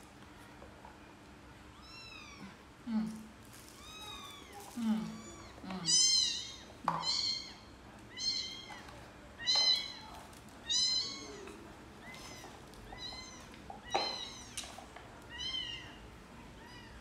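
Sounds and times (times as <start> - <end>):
kittens mewing: 3.8 - 10.0.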